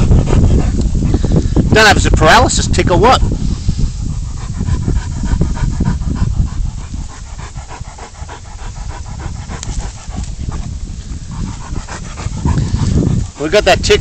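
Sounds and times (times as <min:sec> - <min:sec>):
dog panting: 0:00.0 - 0:14.0.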